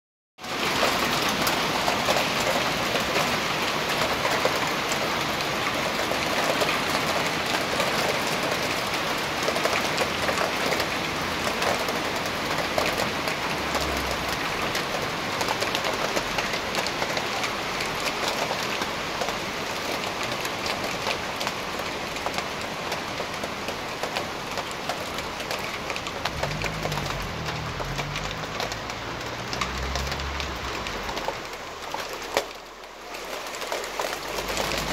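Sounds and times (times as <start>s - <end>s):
hail and rain pelting down: 0.4s - 34.9s
car engine humming: 26.2s - 31.9s.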